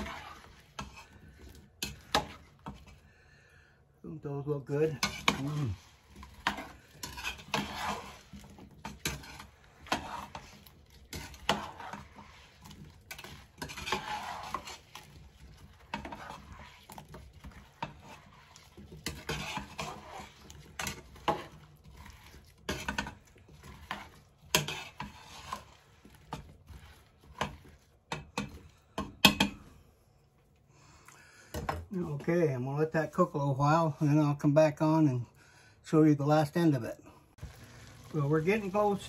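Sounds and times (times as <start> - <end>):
metal spoon scraping a pot: 0.0 - 3.1, 4.7 - 29.8, 37.5 - 39.0.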